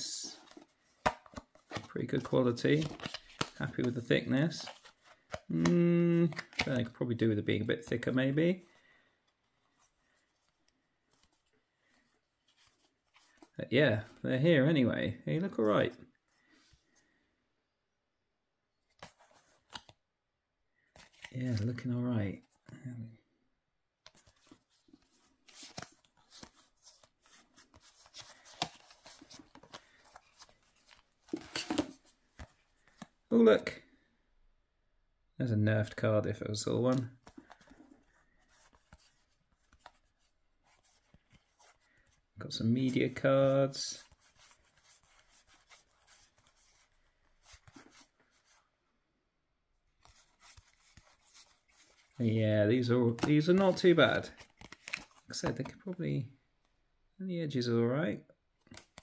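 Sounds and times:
trading cards sliding and clicking: 0:00.3 - 0:06.9, 0:24.1 - 0:33.1, 0:42.8 - 0:48.6, 0:50.0 - 0:52.2, 0:53.1 - 0:55.8.

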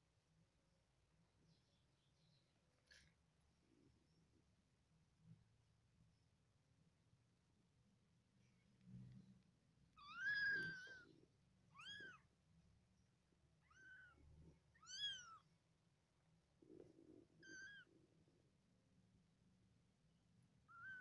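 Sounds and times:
kittens mewing: 0:10.0 - 0:11.1, 0:13.6 - 0:14.2, 0:14.8 - 0:15.5, 0:17.4 - 0:17.9, 0:20.7 - 0:21.0.

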